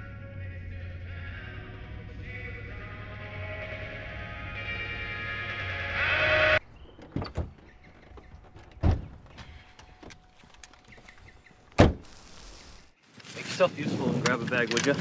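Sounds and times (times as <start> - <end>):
truck door slamming: 6.6 - 10.2, 11.7 - 12.2
door clicks and knocks: 6.9 - 11.1, 11.8 - 12.0.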